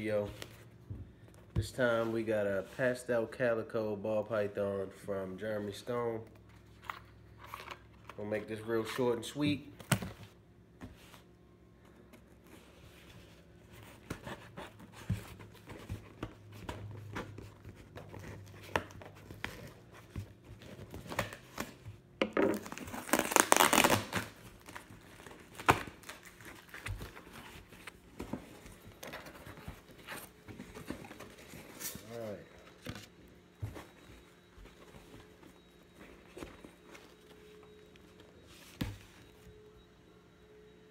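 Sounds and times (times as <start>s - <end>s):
packing tape tearing: 22.5s - 26.9s
loud tearing: 22.7s - 24.3s.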